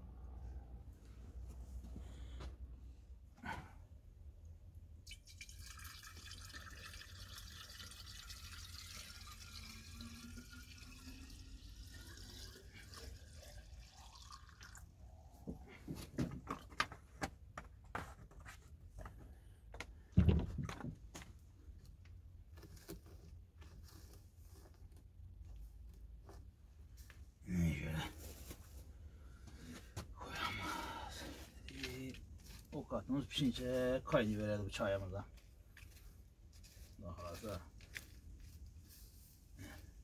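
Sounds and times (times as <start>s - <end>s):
water pouring into kettle: 5.0s - 14.9s.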